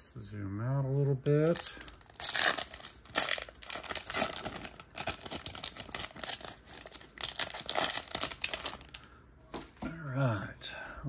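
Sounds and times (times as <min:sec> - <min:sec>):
plastic wrapping crinkling and tearing: 0:01.4 - 0:09.8.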